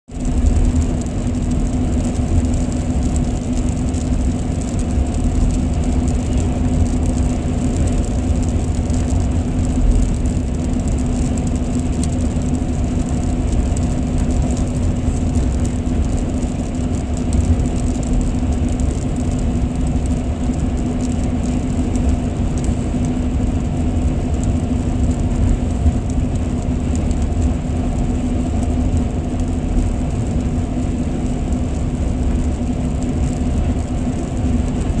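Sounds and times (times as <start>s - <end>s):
car cabin road noise: 0.1s - 35.0s.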